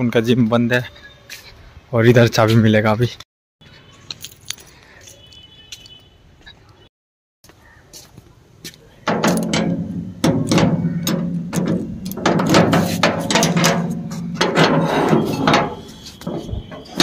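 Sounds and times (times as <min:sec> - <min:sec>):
metal door ringing: 0:09.1 - 0:17.0
padlock rattling and clicking: 0:09.1 - 0:17.0.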